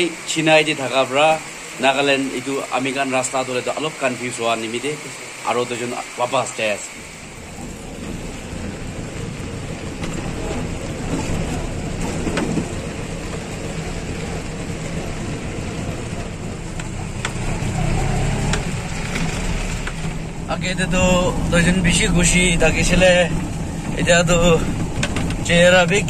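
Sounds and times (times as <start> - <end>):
tyre and road noise: 0.0 - 26.0
low engine hum: 6.9 - 26.0.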